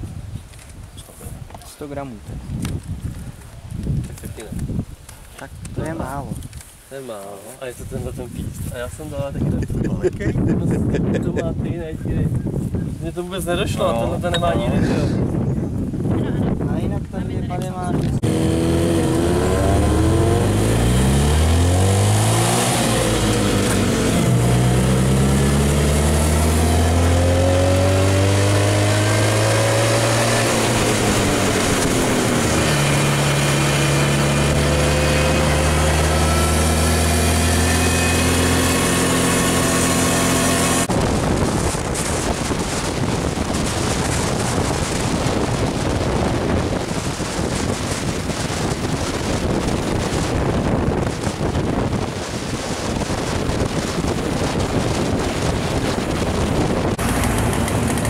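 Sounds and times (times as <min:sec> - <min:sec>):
wind rushing over microphone: 0:00.0 - 0:07.0, 0:07.6 - 0:58.0
vehicle engine accelerating: 0:18.2 - 0:47.0, 0:55.7 - 0:58.0.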